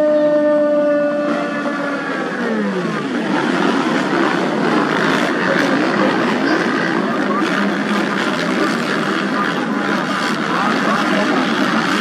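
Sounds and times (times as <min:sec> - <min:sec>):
high engine note sliding down: 0:00.0 - 0:06.4
racing motorcycles revving: 0:00.0 - 0:12.0.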